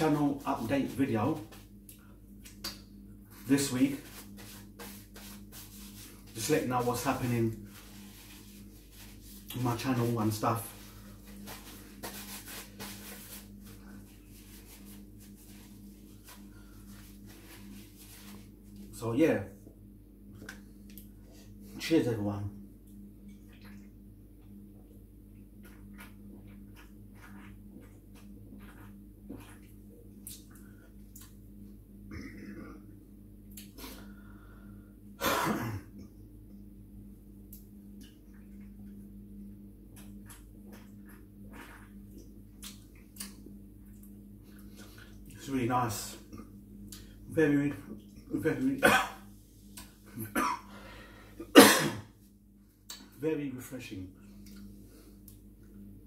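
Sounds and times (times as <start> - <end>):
steady low hum: 0.0 - 56.0
person clearing throat: 32.1 - 32.9, 35.2 - 35.9, 48.8 - 49.2, 50.2 - 50.7, 51.4 - 52.1.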